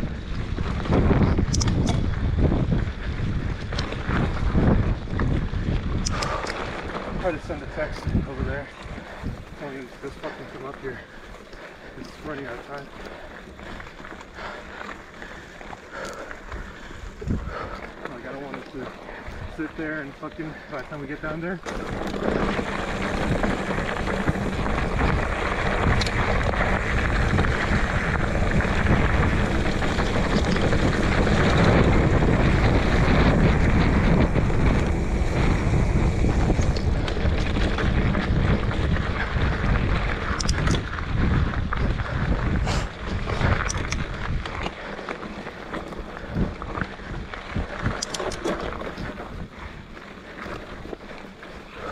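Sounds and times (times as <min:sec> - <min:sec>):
wind rushing over microphone: 0:00.0 - 0:51.9
sharp clicks and rattles: 0:00.7 - 0:02.5, 0:03.5 - 0:49.5.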